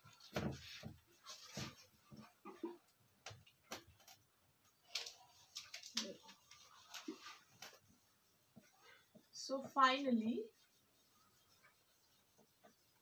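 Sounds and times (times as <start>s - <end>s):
marker pen scratching on whiteboard: 5.0s - 13.0s.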